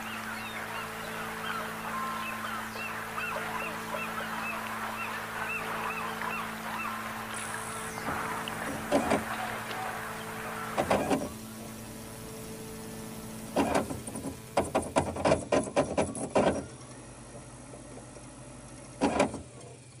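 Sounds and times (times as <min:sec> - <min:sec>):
low steady hum: 0:00.0 - 0:20.0
mechanical clicks and clatters: 0:13.5 - 0:17.0, 0:18.7 - 0:20.0.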